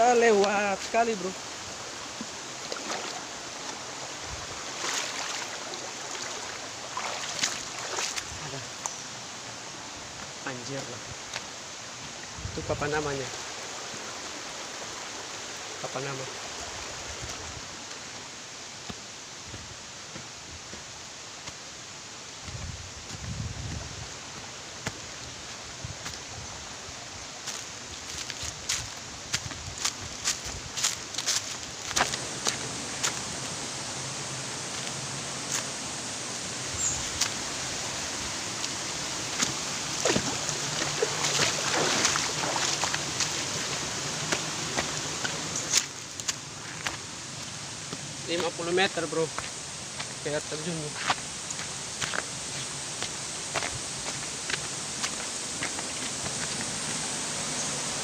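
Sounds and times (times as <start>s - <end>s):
flowing water rushing: 0.0s - 58.0s
clicks and footsteps: 27.5s - 33.2s, 51.0s - 57.0s.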